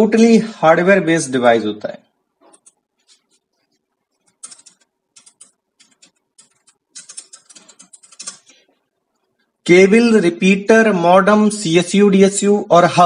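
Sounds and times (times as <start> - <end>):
computer keyboard typing: 2.5 - 3.5, 4.1 - 8.7.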